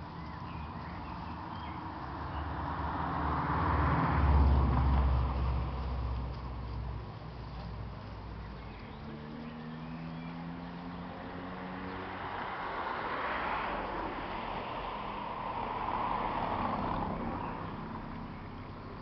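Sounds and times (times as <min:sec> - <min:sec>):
passing road traffic: 0:00.0 - 0:19.0.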